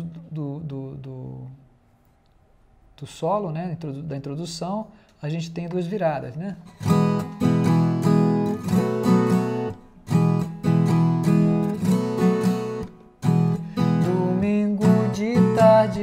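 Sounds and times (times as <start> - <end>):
folk guitar strumming chords: 6.6 - 16.0.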